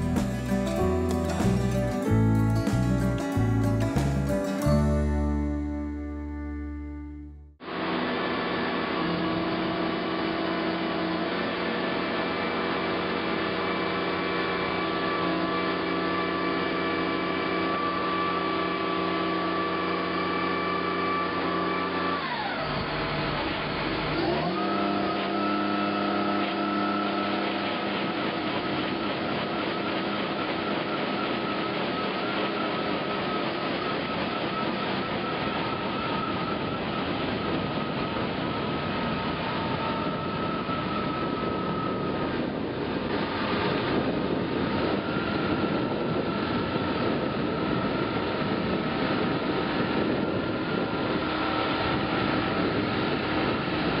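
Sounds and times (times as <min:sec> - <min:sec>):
ditch cleaner machine running: 0:00.0 - 0:07.0, 0:07.6 - 0:54.0
tractor engine at high revs: 0:07.6 - 0:54.0
steady high whine: 0:25.5 - 0:54.0.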